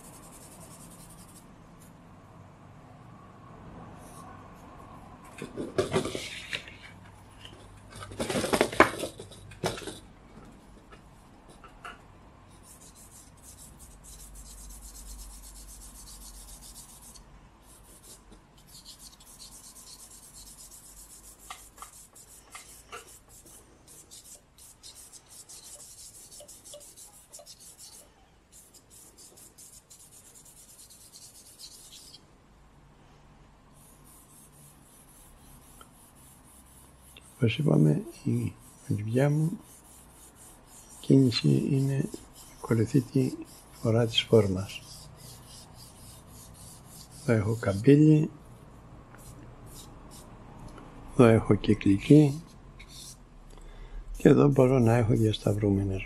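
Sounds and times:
charcoal scratching on paper: 0.0s - 1.5s, 12.5s - 32.2s, 33.8s - 50.3s, 51.1s - 53.3s, 54.2s - 56.0s
paper rustling and knocking: 5.4s - 6.7s, 8.0s - 10.0s.

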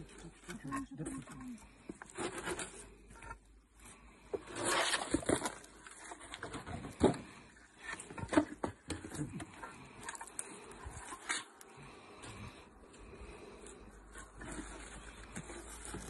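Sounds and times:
wooden box scraping: 1.9s - 3.5s, 4.3s - 11.6s, 13.5s - 16.0s.

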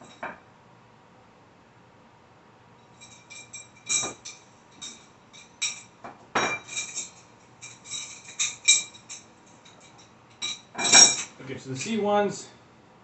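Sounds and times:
metal tubes clinking: 2.9s - 12.0s.

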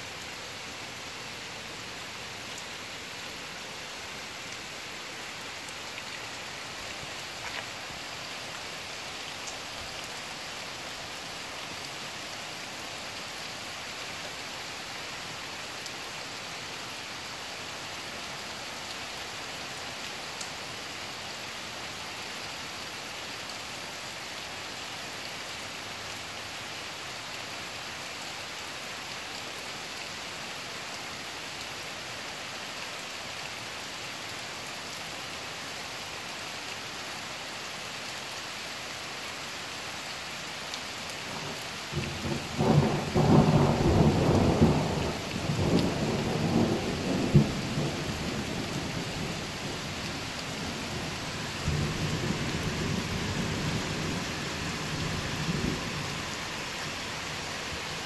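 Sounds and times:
steady rain: 0.0s - 58.0s
thunder rumbling: 41.9s - 49.8s.

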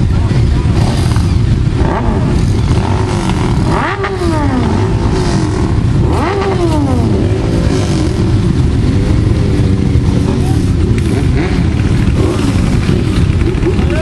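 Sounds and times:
motorcycle engines running: 0.0s - 14.0s
throttle revving: 0.6s - 14.0s.

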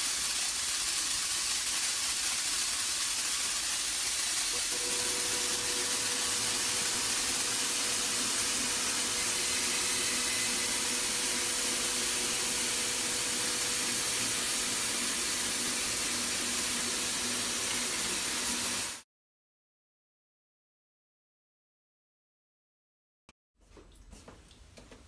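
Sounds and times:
paint spray guns hissing: 0.0s - 19.0s.

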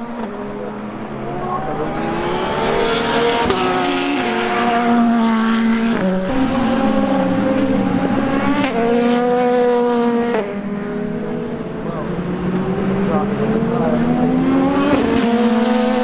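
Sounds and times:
race car engines at speed: 0.0s - 16.0s.

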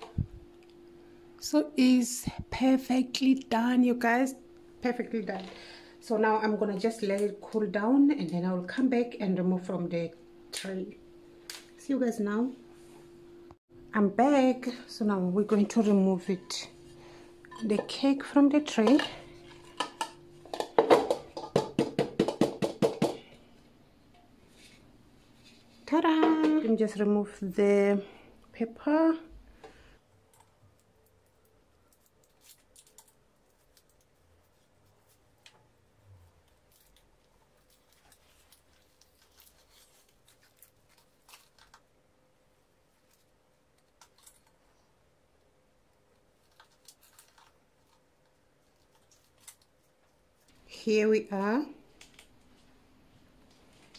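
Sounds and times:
hands tapping on cake pan: 20.9s - 23.2s
baking paper crinkling: 30.2s - 44.9s, 46.1s - 50.6s.

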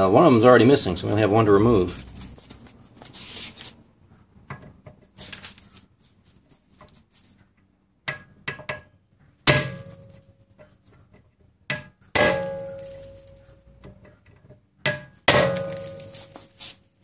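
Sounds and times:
metallic ring: 9.5s - 10.6s, 12.2s - 13.7s.

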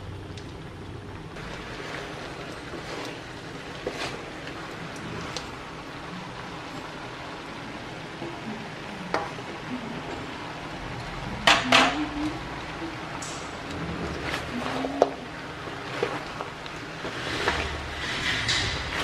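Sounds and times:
spatula scraping in a wok: 17.0s - 19.0s.

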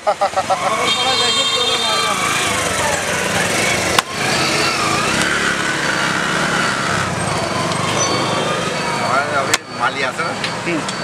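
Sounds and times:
street noise: 0.0s - 11.0s
small engine running: 2.2s - 9.0s.

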